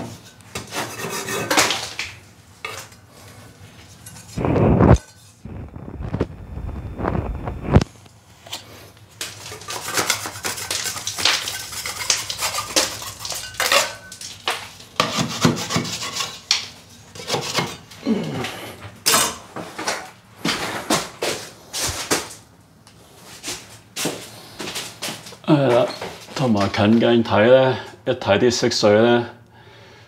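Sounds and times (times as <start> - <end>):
putty knife scraping ceiling: 0.0 - 2.0, 9.2 - 17.9.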